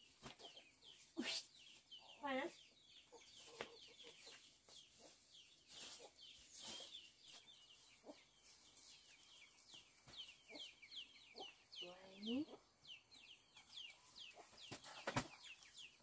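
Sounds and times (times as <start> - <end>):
birds chirping: 0.0 - 16.0
soft rustles: 3.3 - 10.3.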